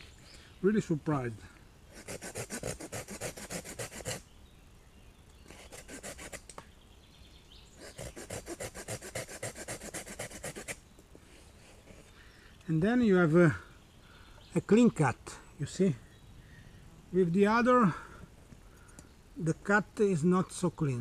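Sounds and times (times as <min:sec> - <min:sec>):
saw cutting branch: 0:01.9 - 0:04.2, 0:05.4 - 0:06.6, 0:07.8 - 0:10.8.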